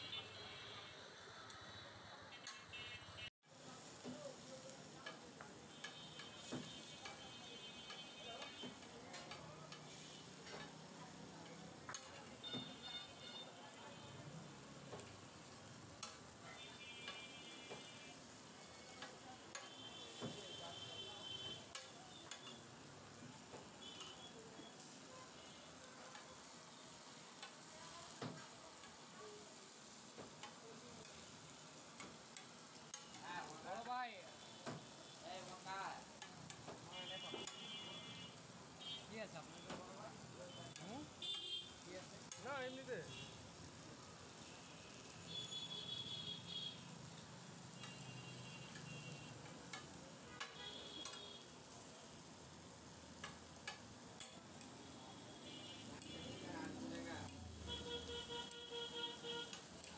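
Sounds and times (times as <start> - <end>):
meat sizzling on griddle: 3.4 - 59.9
metal spatula scraping griddle: 7.9 - 11.0.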